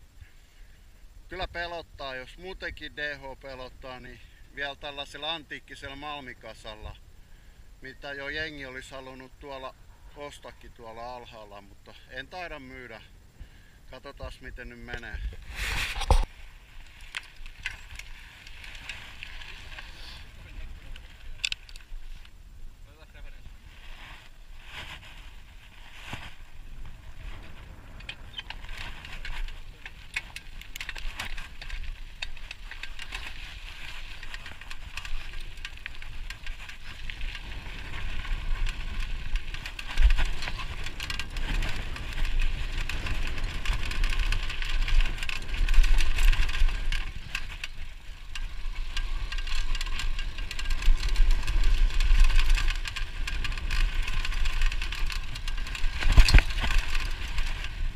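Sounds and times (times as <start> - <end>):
bike rattling over bumps: 14.2 - 22.2, 24.6 - 57.9
bike tyres crunching on gravel: 14.4 - 22.3, 23.5 - 57.9.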